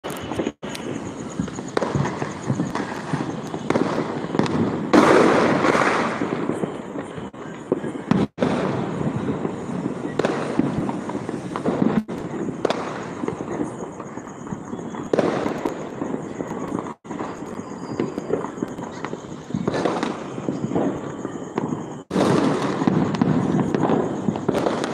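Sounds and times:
firecrackers and fireworks crackling: 0:00.0 - 0:24.9.

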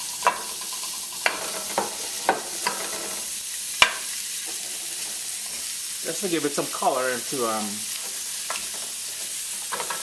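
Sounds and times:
meat sizzling in hot oil: 0:00.0 - 0:10.0
sharp taps of meat in pan: 0:03.8 - 0:04.1.

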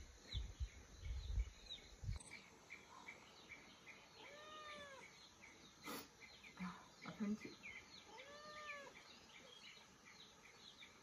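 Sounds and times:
faint chirps: 0:00.0 - 0:11.0
kitten meowing: 0:08.1 - 0:08.9.

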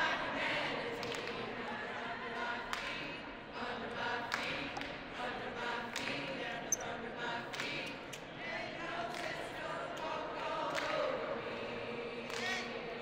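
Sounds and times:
crowd singing together: 0:00.0 - 0:13.0
sharp claps: 0:01.0 - 0:01.4, 0:10.7 - 0:11.0, 0:12.3 - 0:12.6.

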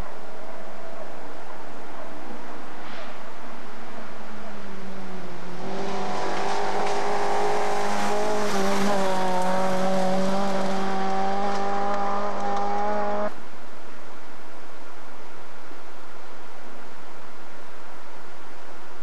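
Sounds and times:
rally car engine at high revs: 0:04.5 - 0:13.4
gravel hissing under tyres: 0:05.6 - 0:12.8.

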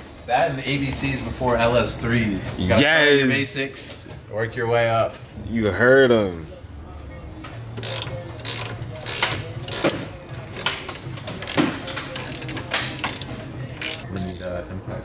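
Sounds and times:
hand tools clicking and rattling: 0:07.8 - 0:14.5.

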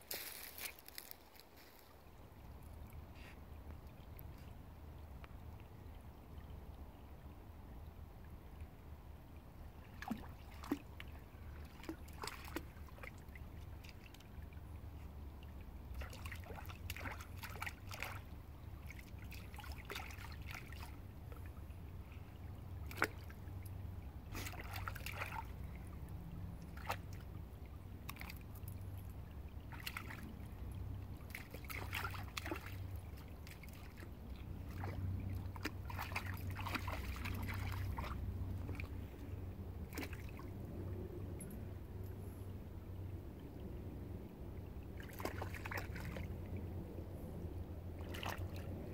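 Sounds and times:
paws splashing in water: 0:09.9 - 0:15.1, 0:15.9 - 0:22.2, 0:22.8 - 0:27.3, 0:28.0 - 0:39.3, 0:39.9 - 0:40.6, 0:45.0 - 0:46.3, 0:48.0 - 0:48.8.

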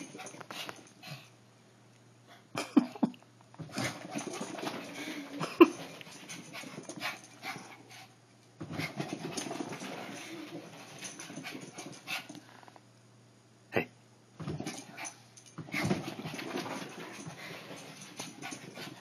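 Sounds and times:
dog panting and vocalising: 0:06.0 - 0:12.4, 0:14.7 - 0:19.0.

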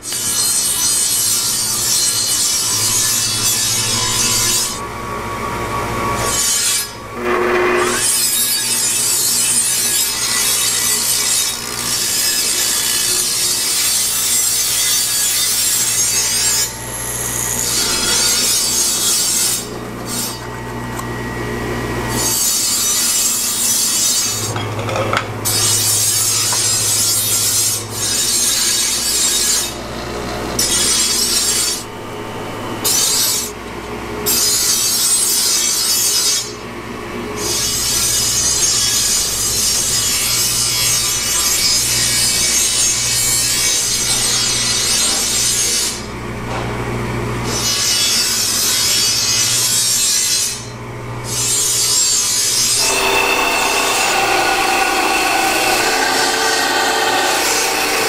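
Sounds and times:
blade grinding on abrasive wheel: 0:00.0 - 0:04.8, 0:06.2 - 0:20.5, 0:47.6 - 0:58.0
grinder motor humming: 0:00.1 - 0:28.0, 0:52.4 - 0:58.0.

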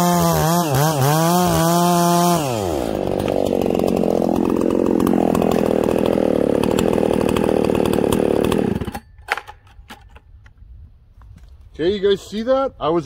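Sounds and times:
chainsaw running at high revs: 0:00.0 - 0:09.0.

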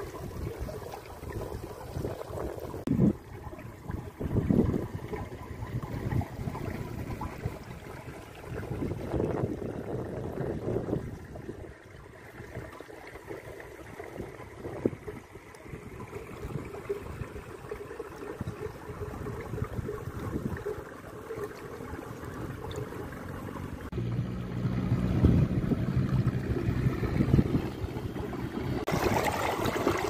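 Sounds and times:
water trickling: 0:00.0 - 0:30.0
uneven low rumble: 0:23.7 - 0:28.9.

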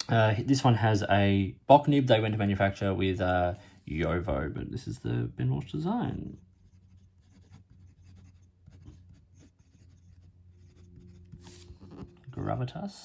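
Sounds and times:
fountain pen scratching on paper: 0:06.6 - 0:12.2.

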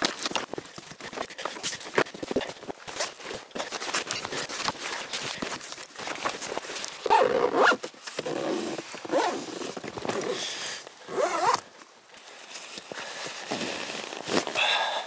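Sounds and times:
bag rustling: 0:00.0 - 0:14.6
zipper rasping: 0:07.0 - 0:10.4, 0:11.0 - 0:11.6.

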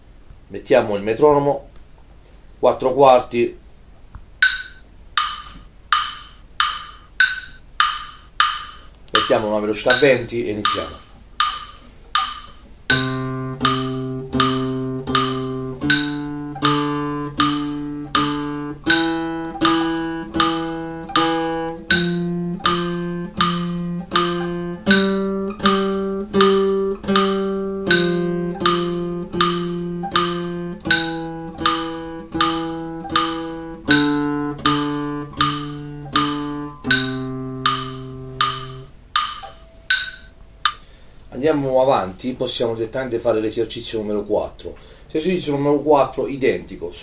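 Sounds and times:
metronome ticking: 0:04.4 - 0:41.7
classical guitar plucked notes: 0:12.9 - 0:38.9.

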